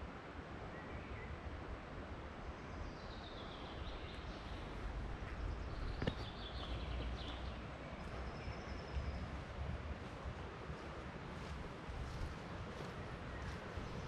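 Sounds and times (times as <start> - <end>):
small birds chirping: 2.5 - 9.6, 11.4 - 14.0.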